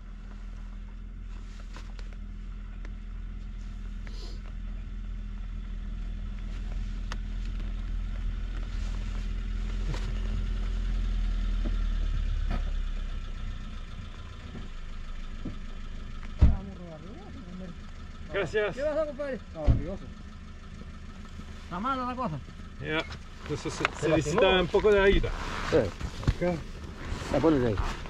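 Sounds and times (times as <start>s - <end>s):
motorcycle engine at low speed: 0.0s - 28.0s.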